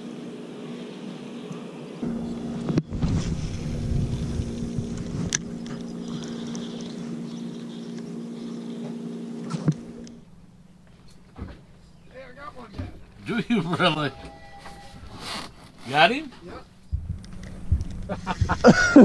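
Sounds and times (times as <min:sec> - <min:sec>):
boat motor idling: 0:02.0 - 0:14.1, 0:16.7 - 0:19.0.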